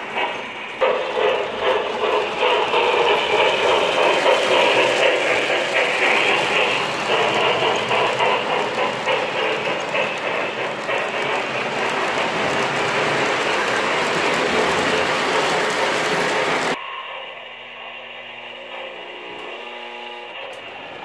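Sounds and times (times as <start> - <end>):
model train wheels rumbling: 0.0 - 16.8
wheels clicking over rail joints: 0.2 - 16.8.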